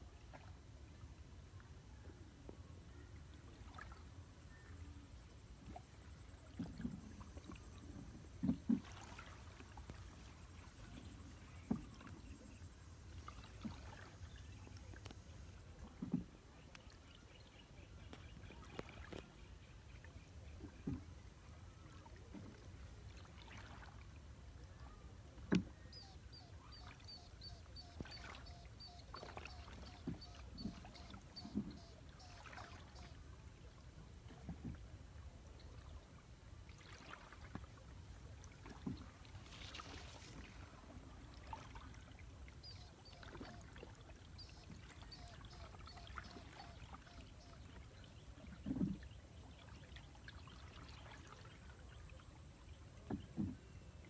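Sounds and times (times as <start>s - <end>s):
boat strokes knocks and splashes: 0.0s - 54.0s.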